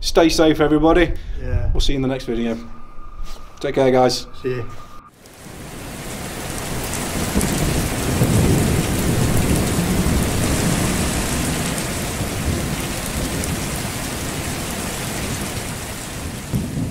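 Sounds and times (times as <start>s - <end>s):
low thunder rumble: 0.6s - 3.2s, 4.1s - 16.9s
steady rain: 5.1s - 16.9s.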